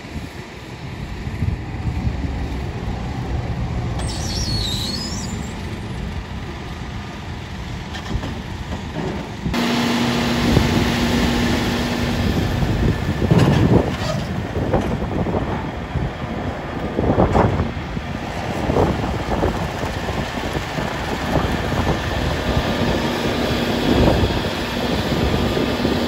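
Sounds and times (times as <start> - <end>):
diesel engine rumbling: 0.0 - 26.0
steady whine: 9.5 - 15.8.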